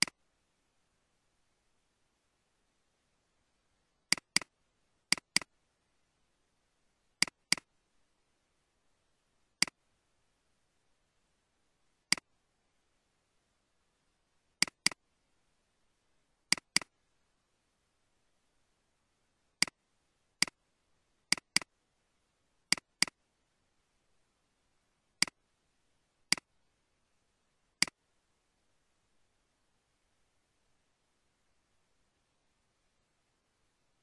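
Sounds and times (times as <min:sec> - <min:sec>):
computer mouse clicks: 0:04.1 - 0:04.5, 0:05.1 - 0:05.5, 0:07.2 - 0:07.7, 0:12.1 - 0:12.3, 0:14.6 - 0:15.0, 0:16.5 - 0:16.9, 0:20.4 - 0:20.6, 0:21.3 - 0:21.7, 0:22.7 - 0:23.2, 0:26.3 - 0:26.5.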